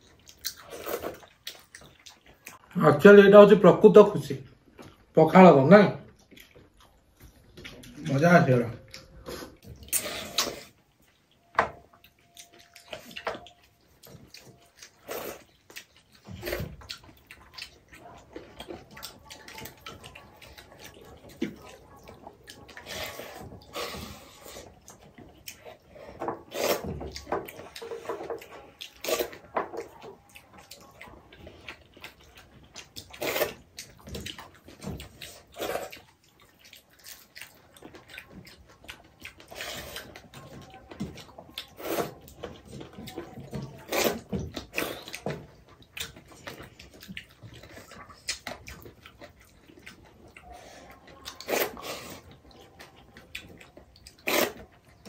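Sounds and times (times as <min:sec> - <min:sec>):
wet eating sounds: 0:00.0 - 0:55.0.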